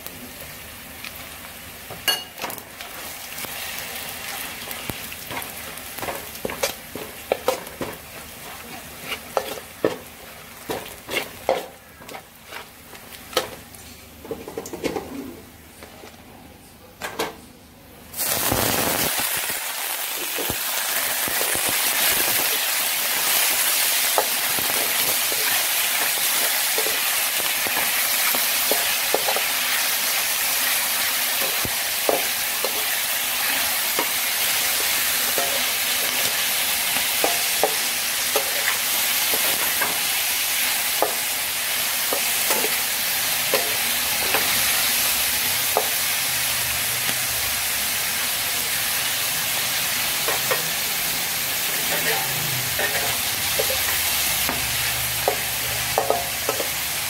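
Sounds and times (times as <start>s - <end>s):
food sizzling in a wok: 0.0s - 15.4s, 18.1s - 57.0s
metal spatula scraping a wok: 5.3s - 10.1s, 10.7s - 13.6s, 51.6s - 56.8s.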